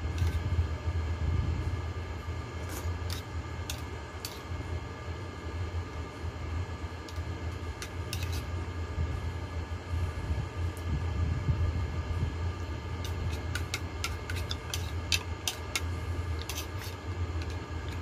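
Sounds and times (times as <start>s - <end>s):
steady low rumble: 0.0s - 18.0s.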